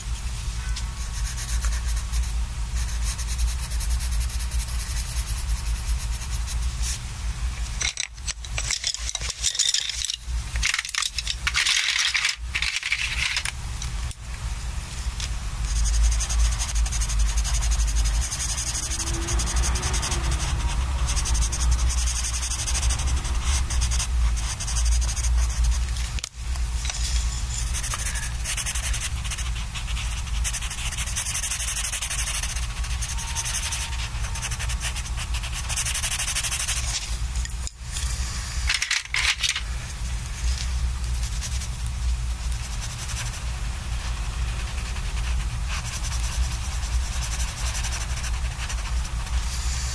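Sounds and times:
colored pencil scratching on paper: 0.0 - 7.0, 15.6 - 26.1, 26.8 - 37.1, 40.3 - 49.9.

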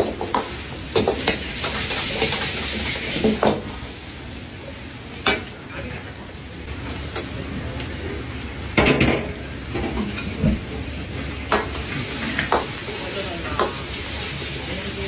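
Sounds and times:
rice sizzling in a wok: 0.0 - 15.0.

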